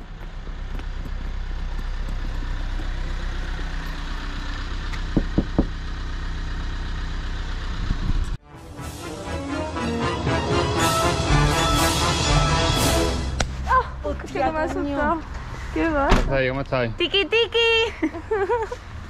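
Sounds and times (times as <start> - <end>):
car engine running: 0.0 - 8.4
road noise: 0.0 - 19.0.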